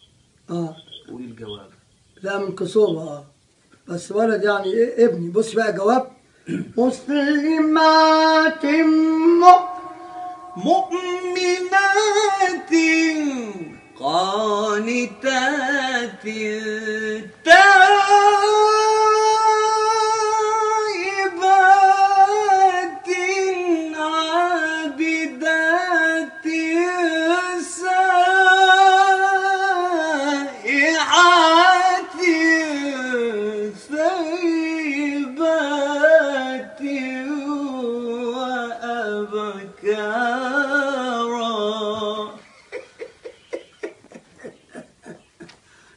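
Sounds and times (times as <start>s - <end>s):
man chanting recitation: 0.5s - 42.5s.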